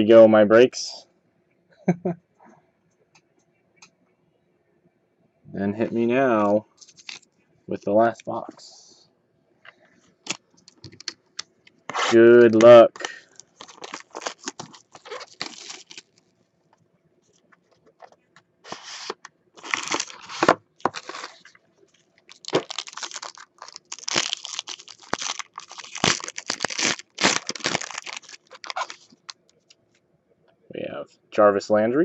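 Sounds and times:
foil pack ripping and crinkling: 11.9 - 16.2, 18.7 - 21.6, 22.3 - 29.4.

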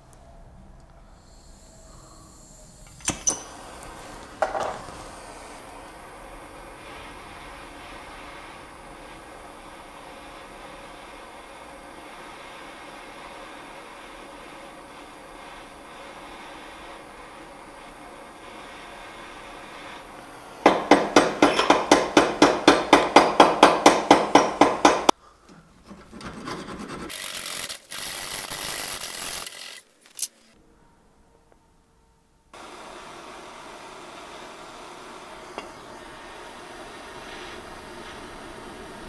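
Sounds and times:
blowtorch flame hissing: 1.1 - 25.2, 32.6 - 39.0.

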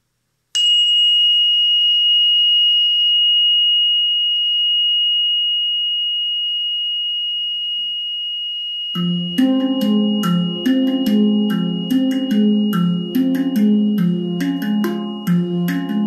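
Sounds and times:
high-pitched electronic tone: 8.9 - 16.0.

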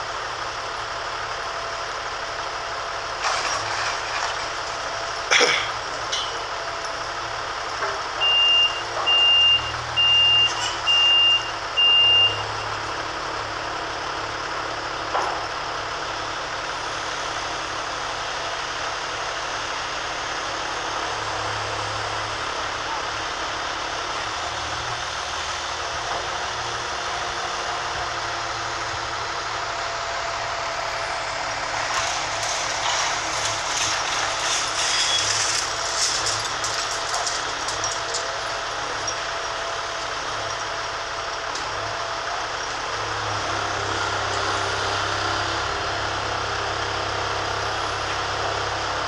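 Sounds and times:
heavy construction machinery running: 0.0 - 49.0
machinery clatter: 3.1 - 8.2, 30.9 - 41.9
vehicle reversing alarm beeps: 7.7 - 13.1.

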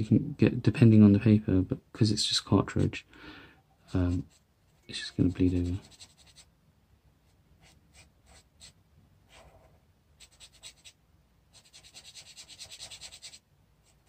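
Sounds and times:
marker scratching on paper: 3.9 - 6.5, 7.6 - 14.0.

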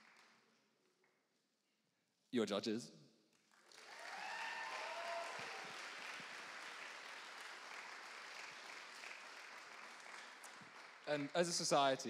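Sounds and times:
audience applauding: 0.0 - 0.3, 3.5 - 11.8.

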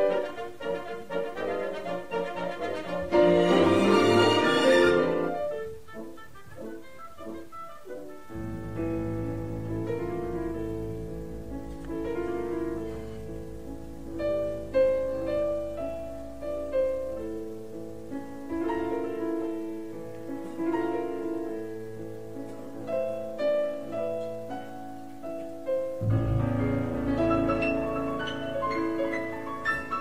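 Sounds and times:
slow instrumental music: 0.0 - 21.8.

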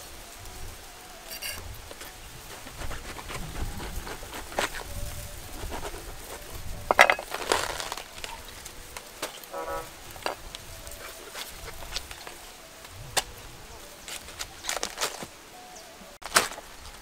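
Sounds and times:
knife cutting cabbage: 2.5 - 4.9.

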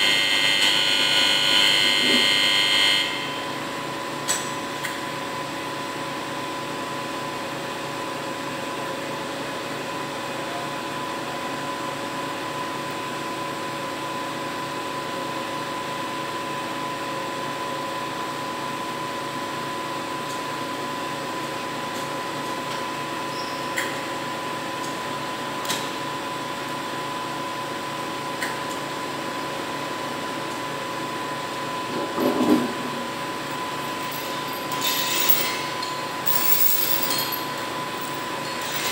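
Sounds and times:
crane drive humming and whining: 0.0 - 38.9
weights and chains clanking: 33.5 - 38.9.

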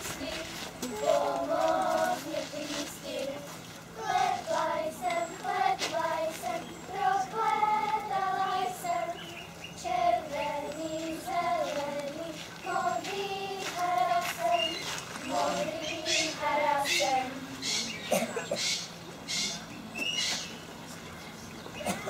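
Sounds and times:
girls singing in unison: 0.0 - 17.6.

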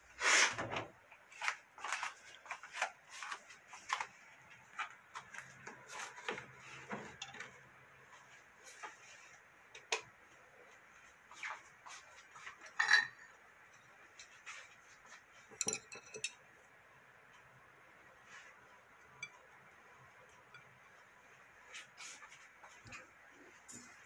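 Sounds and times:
plate and utensils clicking: 15.6 - 16.4.

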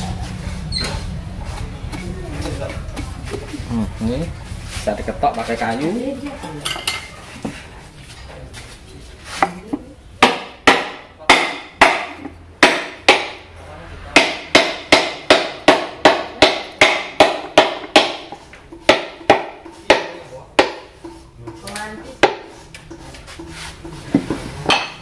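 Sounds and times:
hammer knocking on wooden block: 10.2 - 13.4, 14.2 - 21.6.

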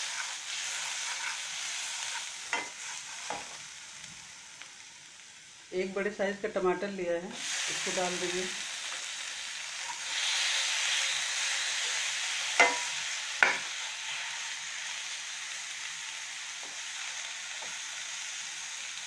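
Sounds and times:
food sizzling in oil: 0.0 - 19.0
spoon knocking against pan: 12.6 - 13.7.

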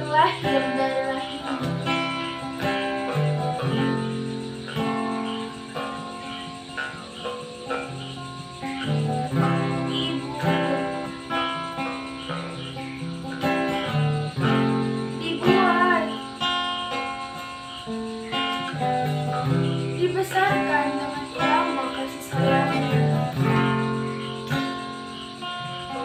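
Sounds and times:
person singing: 0.0 - 4.9, 9.3 - 11.5, 15.2 - 16.3, 20.0 - 23.8
acoustic guitar strumming: 0.0 - 26.0.

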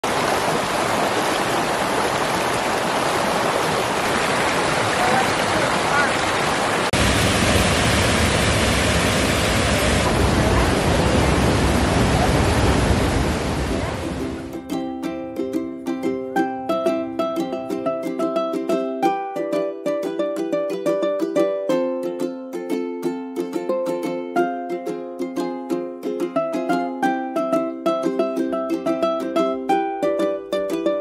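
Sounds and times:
river rushing over rocks: 0.0 - 14.5.

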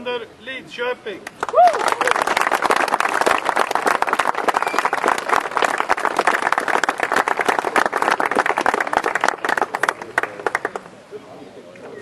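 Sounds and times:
crowd applauding: 1.4 - 10.9.

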